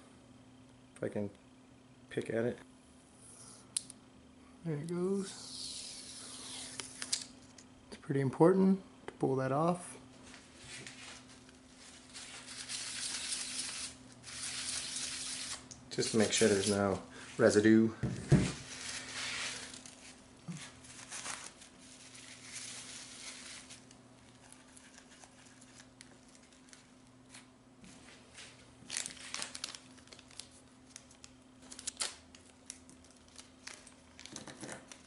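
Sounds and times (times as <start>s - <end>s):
plastic packaging crinkling: 18.7s - 27.0s, 28.8s - 35.0s.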